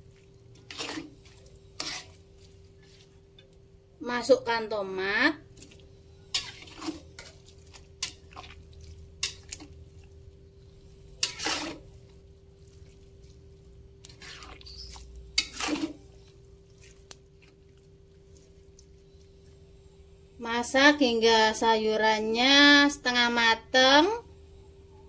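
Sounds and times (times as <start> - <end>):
steady low hum: 0.0 - 21.6
metal spatula stirring soup: 0.1 - 3.6, 5.5 - 19.0
spatula scraping a wok: 0.5 - 3.3, 5.5 - 9.8, 10.7 - 17.6.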